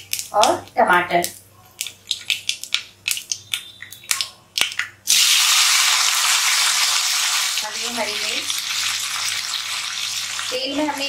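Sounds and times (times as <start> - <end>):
seeds crackling in hot oil: 0.0 - 11.0
tomatoes sizzling in oil: 5.1 - 11.0.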